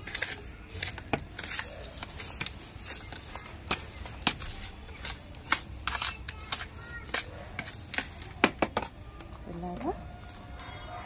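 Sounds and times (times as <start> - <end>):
fingers scratching through soil: 0.0 - 8.3.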